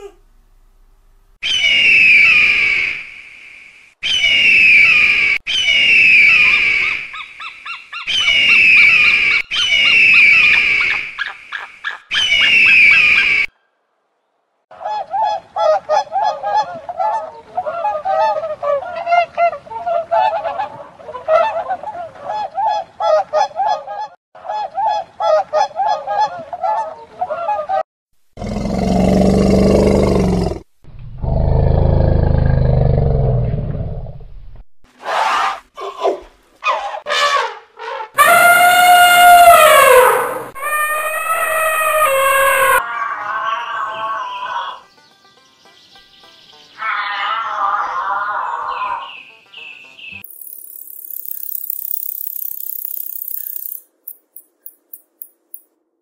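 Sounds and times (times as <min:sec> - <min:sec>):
eagle high calls: 0:38.2 - 0:44.8
elephant calls: 0:38.2 - 0:44.8.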